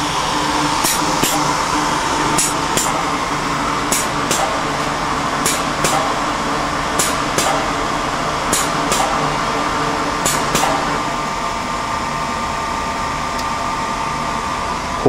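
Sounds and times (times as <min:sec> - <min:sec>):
machine hum with high tone: 0:00.0 - 0:15.0.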